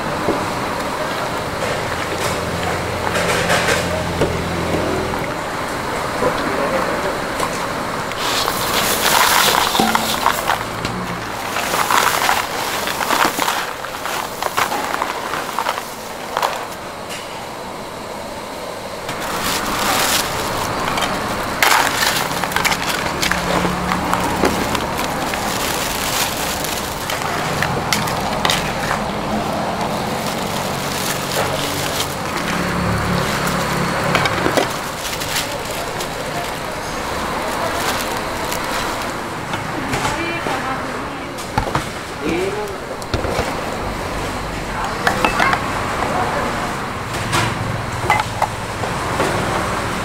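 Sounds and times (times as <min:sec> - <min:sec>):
utensils and cookware clattering: 0:01.1 - 0:05.3, 0:08.0 - 0:17.2, 0:19.1 - 0:40.7, 0:44.8 - 0:49.8.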